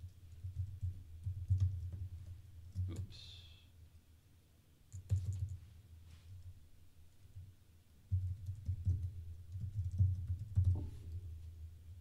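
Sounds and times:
computer keyboard typing: 0.3s - 2.0s, 4.9s - 5.6s, 8.1s - 10.8s.

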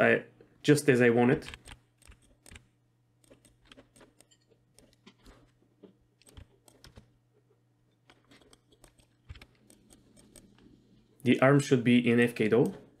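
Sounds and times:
low steady hum: 0.0s - 13.0s
keyboard and mouse clicks: 1.4s - 7.1s, 8.0s - 10.8s.

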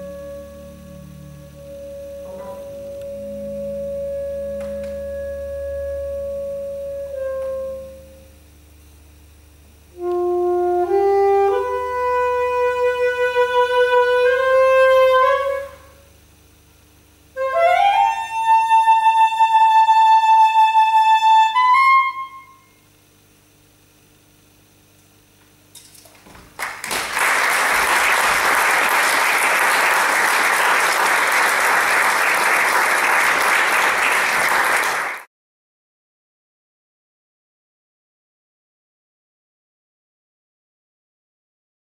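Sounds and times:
solo saxophone: 0.0s - 8.4s, 9.9s - 16.2s, 17.3s - 22.9s.

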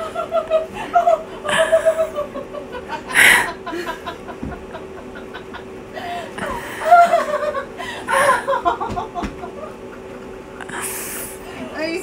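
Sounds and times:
woman laughing: 0.0s - 10.8s
faint steady hum: 0.0s - 12.0s.

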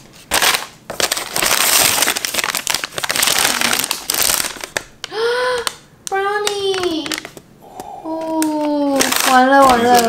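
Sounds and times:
paper rustling and crinkling: 0.0s - 5.2s, 8.1s - 10.0s.

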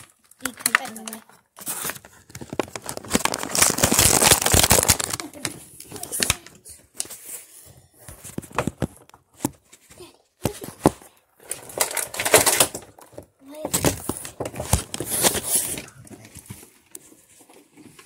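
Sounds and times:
packaging crinkling and tearing: 0.0s - 7.4s, 11.4s - 16.7s.

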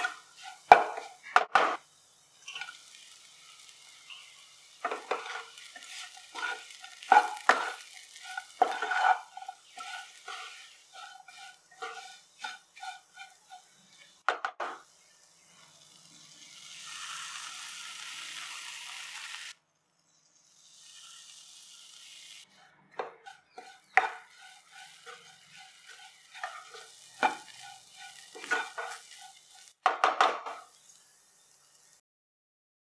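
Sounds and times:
spatula scraping a pan: 0.0s - 1.8s, 2.4s - 14.8s, 20.8s - 31.0s
oil sizzling: 0.0s - 19.6s, 20.3s - 32.0s
spatula knocking on pan: 0.7s - 1.8s, 14.2s - 14.8s, 23.0s - 27.8s, 29.8s - 30.6s.

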